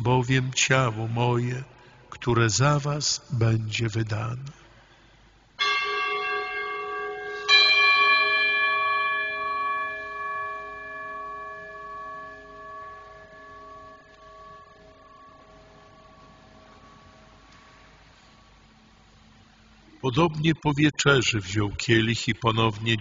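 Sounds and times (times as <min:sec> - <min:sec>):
bell ringing: 0:05.6 - 0:17.9.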